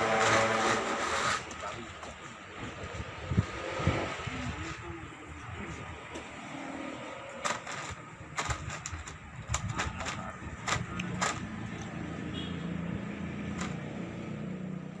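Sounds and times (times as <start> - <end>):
sharp clicks and knocks: 7.4 - 12.0, 13.5 - 13.9.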